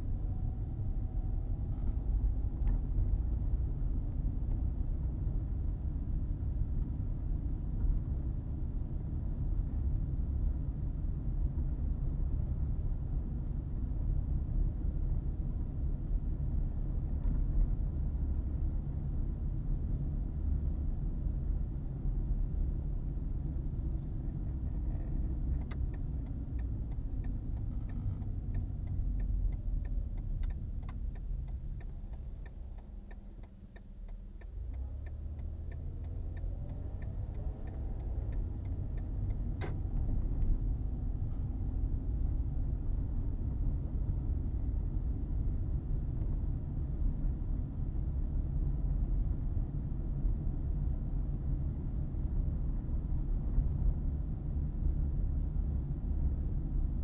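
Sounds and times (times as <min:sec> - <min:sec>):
car engine and tyre rumble: 0:00.0 - 0:57.0
turn signal ticking: 0:23.6 - 0:42.0.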